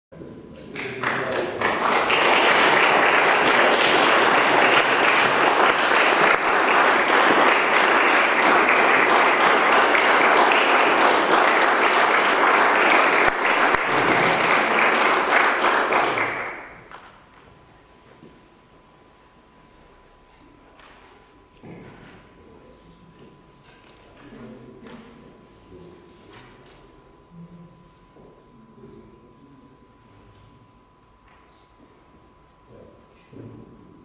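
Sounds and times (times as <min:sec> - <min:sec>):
audience applauding: 0:00.8 - 0:17.0.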